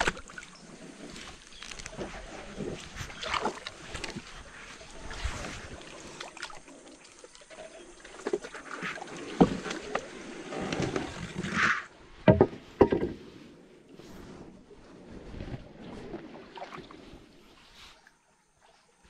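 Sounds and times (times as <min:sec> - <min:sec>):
water swishing with paddle strokes: 0:00.0 - 0:19.0
knocks against the hull: 0:12.2 - 0:13.2.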